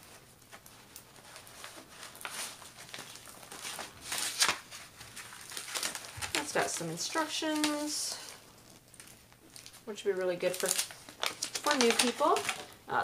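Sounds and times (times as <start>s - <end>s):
canvas and paper crinkling: 0.0s - 13.0s.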